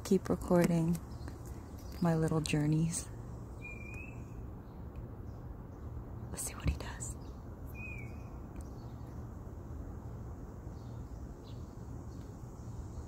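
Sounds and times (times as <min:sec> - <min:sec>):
bird chirp: 0:00.7 - 0:09.3, 0:10.7 - 0:13.0
faint high insect hiss: 0:05.3 - 0:13.0.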